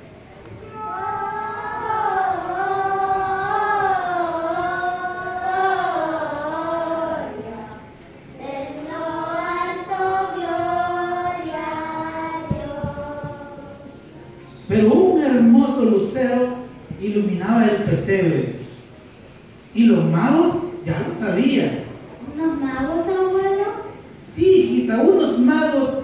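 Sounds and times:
children singing in unison: 0.6 - 14.0.

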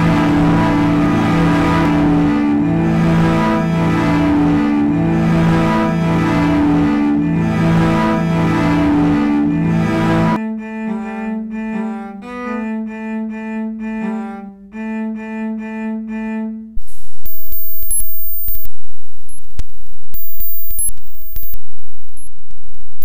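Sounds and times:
cellos bowing held notes: 0.0 - 16.8.

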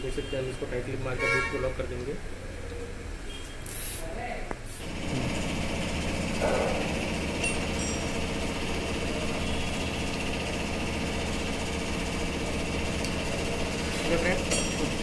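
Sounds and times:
machine humming: 4.8 - 15.0.

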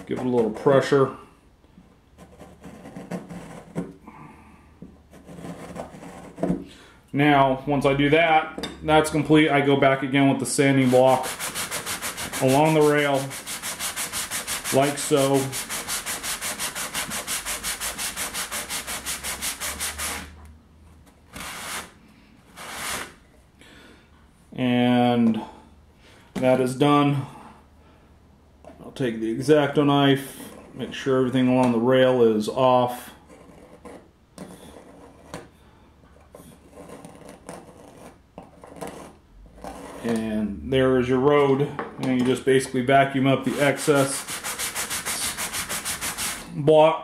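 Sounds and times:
sanding block rubbing back and forth: 10.7 - 20.4, 21.4 - 22.0, 22.6 - 23.2, 43.4 - 46.5.

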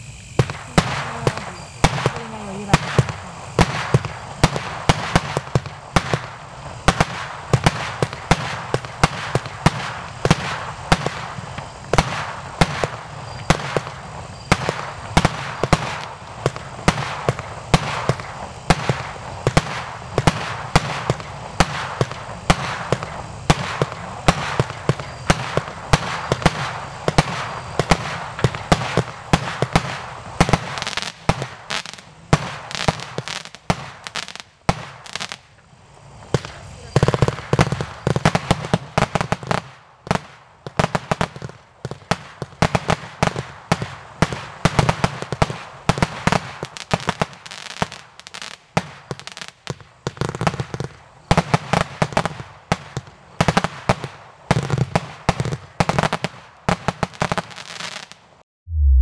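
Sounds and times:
firework launch thumps and bursts: 0.0 - 35.4, 36.3 - 57.5
firework cake firing: 0.0 - 58.9.

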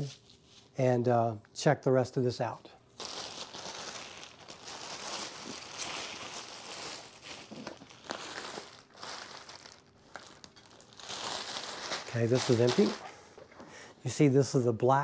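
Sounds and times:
plastic wrap crinkling: 2.9 - 13.4.

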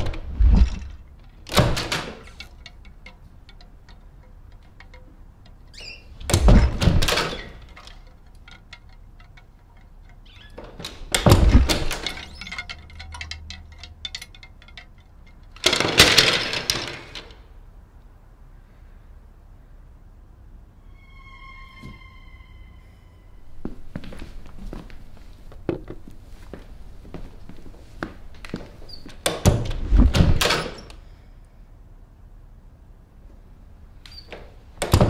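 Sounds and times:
metal hangers clattering on rod: 0.0 - 17.3.

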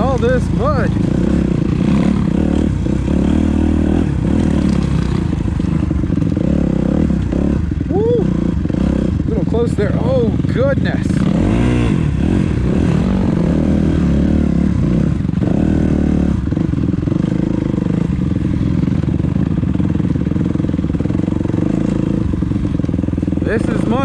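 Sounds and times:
dirt bike engine revving: 0.0 - 24.0.

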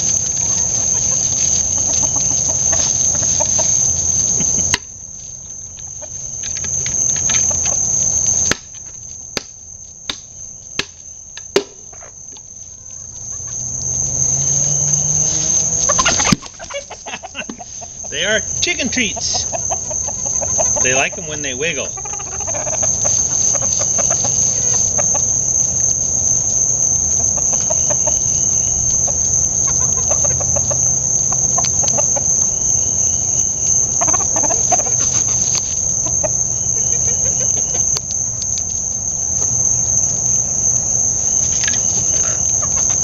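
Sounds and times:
high-pitched insect drone: 0.0 - 9.2, 11.7 - 43.0
chickens clucking softly: 12.7 - 38.0, 41.6 - 43.0.

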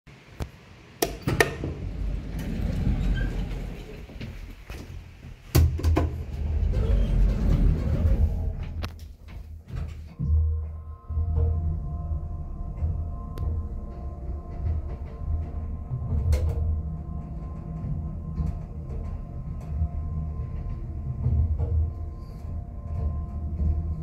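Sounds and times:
elevator doors knocking and rumbling: 1.1 - 24.0
elevator hum: 1.2 - 24.0.

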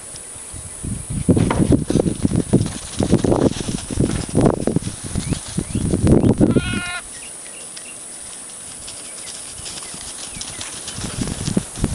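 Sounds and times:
bumping and rustling: 1.3 - 6.5, 8.6 - 11.9
goat bleating: 6.4 - 7.1.

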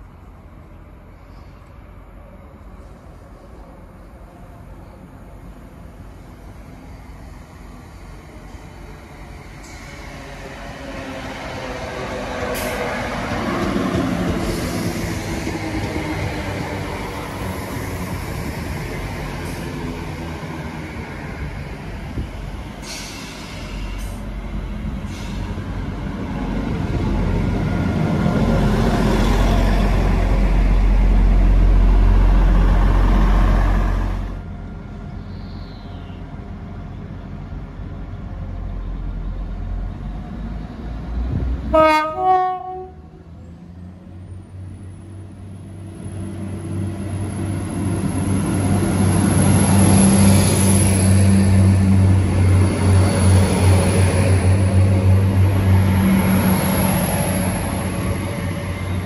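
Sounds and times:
train low rumble: 0.0 - 59.0
train horn toot: 41.7 - 43.1.

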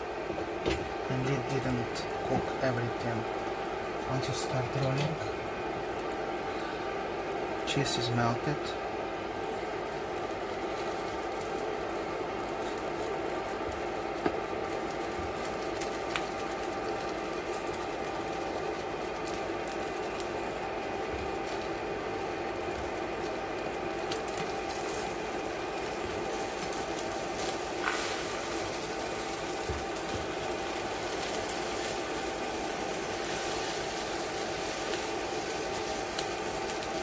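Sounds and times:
cooling fan humming: 0.0 - 37.0.

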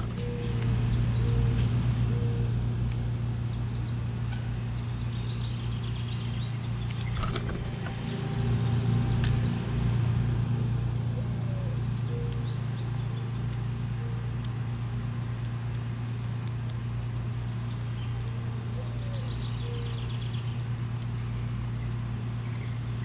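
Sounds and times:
low rumble: 0.0 - 23.0
small birds chirping: 0.0 - 23.0.

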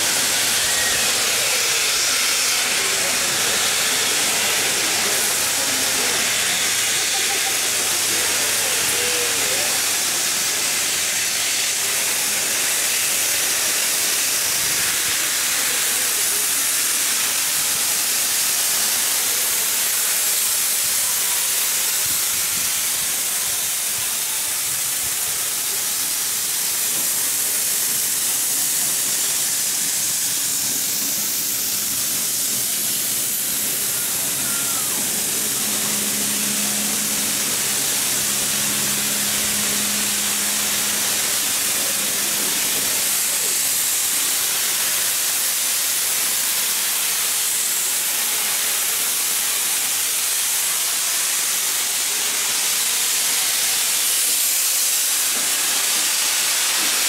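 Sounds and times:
steam hissing: 0.0 - 57.0.

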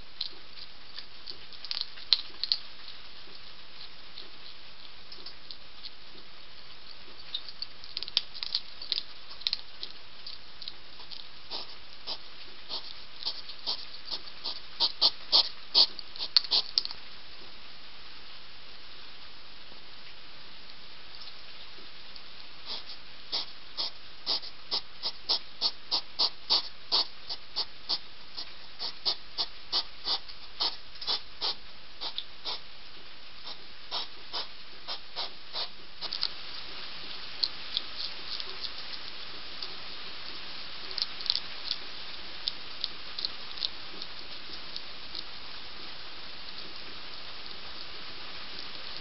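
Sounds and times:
hedgehog crunching food: 0.0 - 17.0, 22.2 - 45.4
heavy rain hiss: 11.3 - 49.0.

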